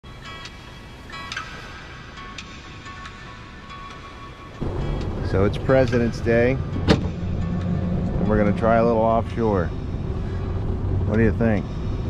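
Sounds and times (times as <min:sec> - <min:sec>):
quiet background music: 0:00.0 - 0:12.0
steady tone: 0:04.6 - 0:11.1.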